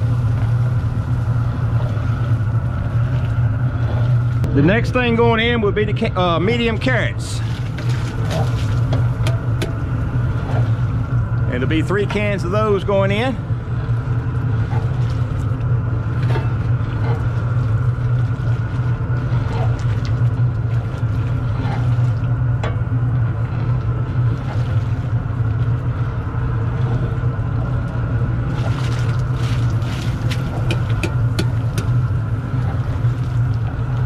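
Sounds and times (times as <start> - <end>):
propane burner rumbling: 0.0 - 34.0.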